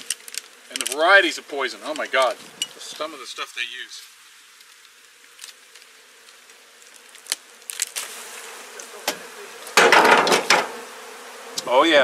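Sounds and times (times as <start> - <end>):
bees buzzing: 0.0 - 12.0
comb scraping over wooden box: 4.7 - 12.0.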